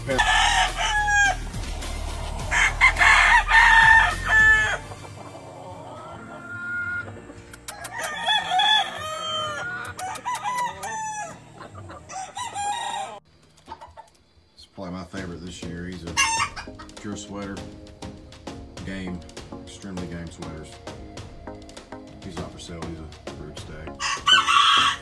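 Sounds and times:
roosters crowing: 0.0s - 14.0s, 16.2s - 16.9s, 24.0s - 25.0s
chickens clucking: 3.9s - 14.4s.

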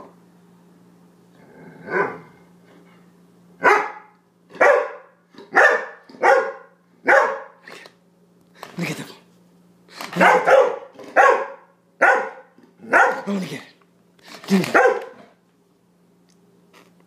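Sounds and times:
dog barking: 3.6s - 7.6s, 10.2s - 13.3s, 14.6s - 15.3s.

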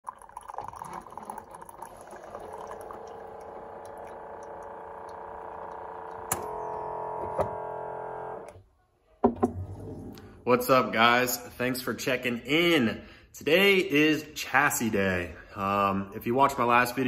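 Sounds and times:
coffee pouring into a mug: 0.0s - 6.1s
brewer hum: 0.0s - 8.6s, 9.2s - 11.0s.

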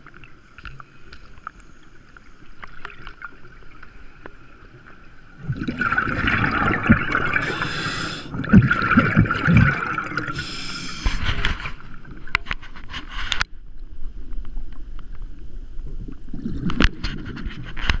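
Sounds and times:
underwater exhaled air bubbling: 2.7s - 12.3s
hissing regulator breaths: 7.4s - 8.4s, 10.3s - 11.4s.

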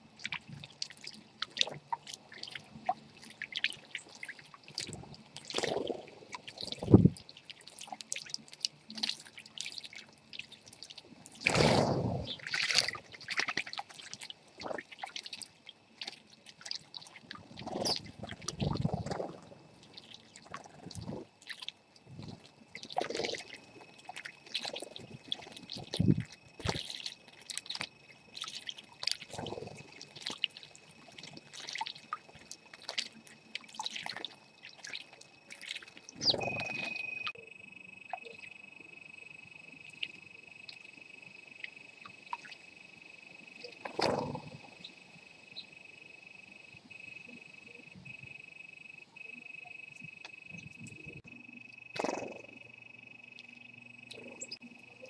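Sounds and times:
birds splashing in water: 5.4s - 37.3s
faint steady high tone: 30.6s - 55.0s
short bird chirps: 36.2s - 37.3s.

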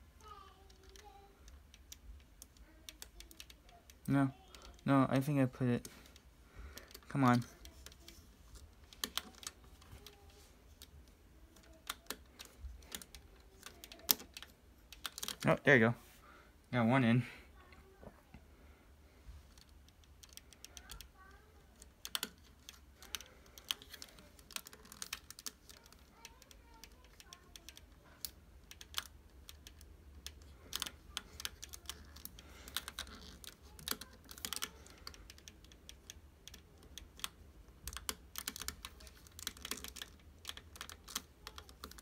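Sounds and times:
plastic puzzle pieces clicking: 5.8s - 15.5s, 19.5s - 42.0s.

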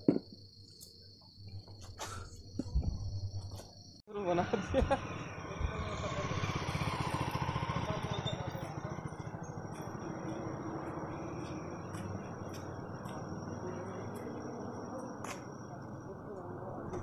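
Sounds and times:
motorcycle passing by: 4.4s - 14.3s.

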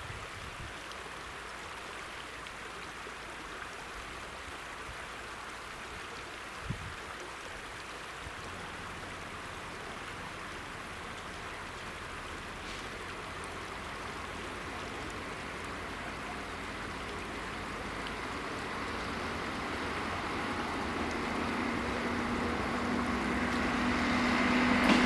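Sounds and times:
train rushing noise: 19.1s - 25.0s.

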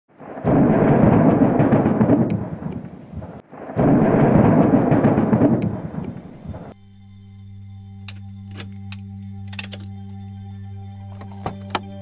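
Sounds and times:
loud rumbling crashes: 0.2s - 6.7s.

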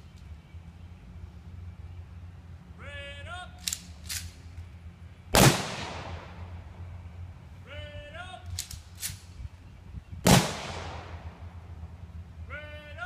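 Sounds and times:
low steady rumble: 0.0s - 13.0s
person shouting a command: 2.8s - 3.6s, 7.6s - 8.5s, 12.4s - 13.0s
sharp rifle clicks: 3.6s - 4.7s, 8.4s - 9.4s
rifle volley echoing: 5.3s - 6.6s, 10.2s - 11.5s.

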